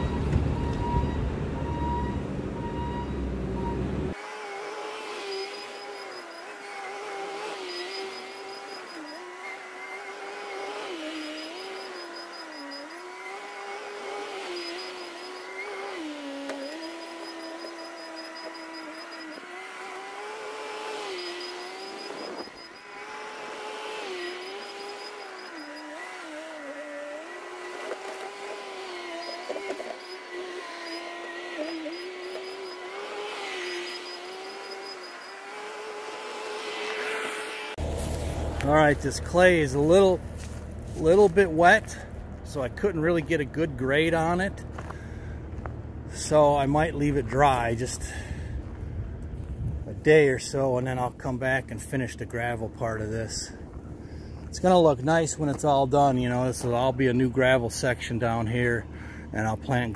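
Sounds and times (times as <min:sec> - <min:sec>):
backup alarm beeping: 0:00.0 - 0:04.2
diesel engine rumble: 0:00.0 - 0:04.2, 0:37.8 - 0:59.9
diesel engine of track loader: 0:00.0 - 0:59.9
faint wavering whine: 0:24.3 - 0:32.9.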